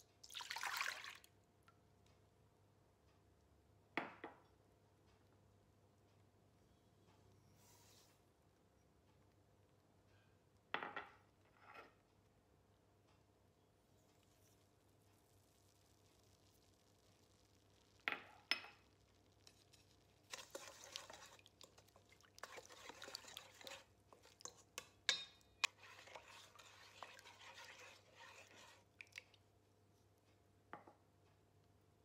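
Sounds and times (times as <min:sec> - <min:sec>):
spoon scraping metal bowl: 0:19.4 - 0:28.9.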